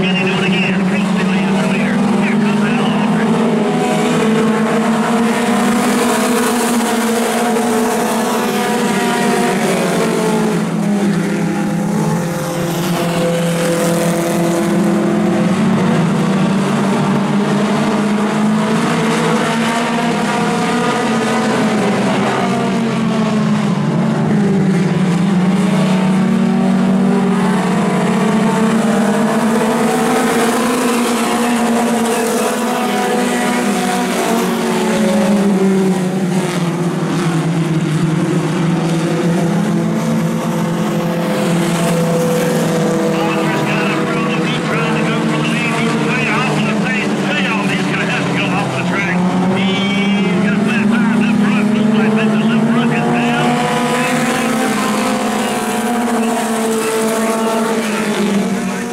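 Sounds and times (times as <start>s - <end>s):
race car engines: 0.0s - 58.9s.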